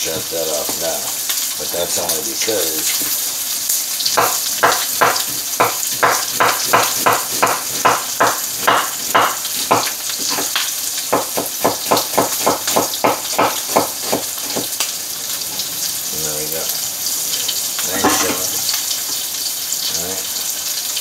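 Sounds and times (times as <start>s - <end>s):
steak sizzling in pan: 0.0s - 21.0s
knife chopping on wooden board: 4.2s - 14.8s, 17.9s - 18.5s.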